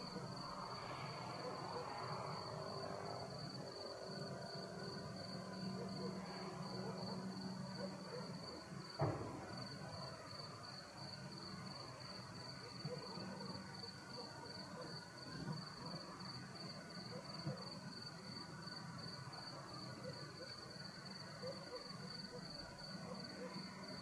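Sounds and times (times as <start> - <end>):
crickets chirring: 0.0 - 7.6.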